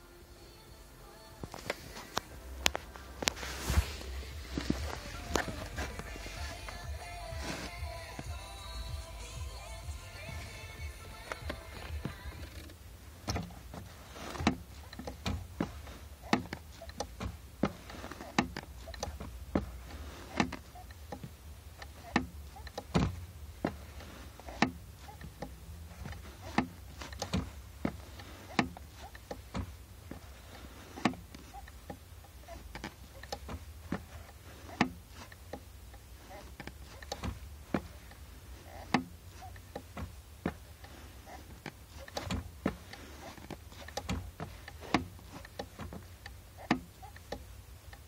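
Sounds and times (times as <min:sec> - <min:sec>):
clutch pedal clicking: 0:10.2 - 0:48.0.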